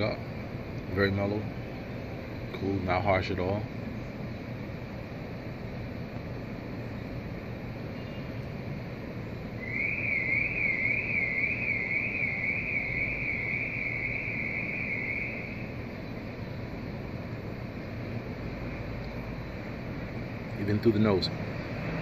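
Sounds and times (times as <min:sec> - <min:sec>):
outdoor background noise: 0:00.0 - 0:22.0
warbling electronic alarm tone: 0:09.6 - 0:15.7.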